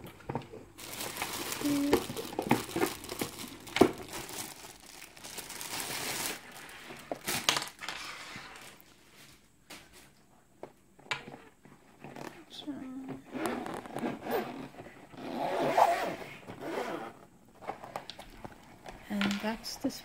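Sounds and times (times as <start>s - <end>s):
plastic bag crinkling: 0.8s - 8.9s.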